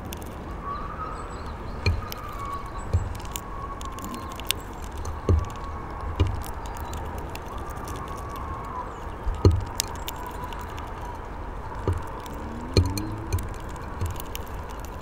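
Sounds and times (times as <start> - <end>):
bird pecking and cracking seeds: 0.0 - 0.5, 1.4 - 15.0
faint wavering drone: 12.1 - 14.2.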